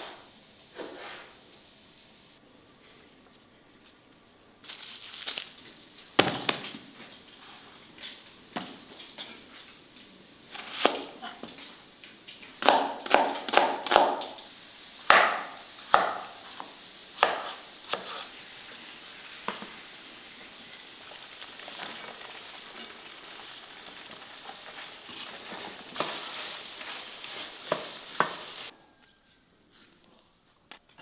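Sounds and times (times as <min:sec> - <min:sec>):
oil sizzling in a pan: 0:04.6 - 0:28.7
knife chopping on wooden board: 0:12.6 - 0:14.2, 0:17.2 - 0:18.2.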